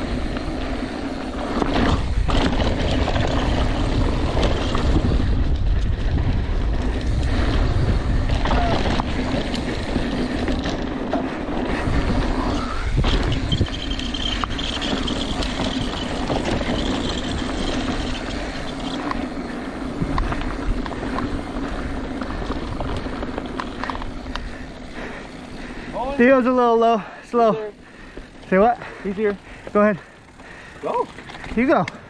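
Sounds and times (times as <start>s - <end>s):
bike rattling: 0.0s - 32.0s
bike tyres rumbling over gravel: 0.0s - 32.0s
wind on microphone: 1.9s - 10.6s, 11.7s - 18.2s.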